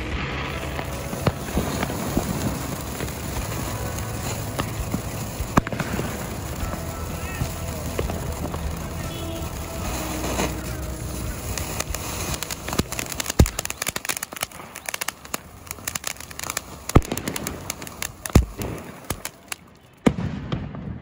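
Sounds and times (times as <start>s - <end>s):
firework fountain hissing and crackling: 0.0s - 20.7s
sharp firework pops: 0.0s - 21.0s.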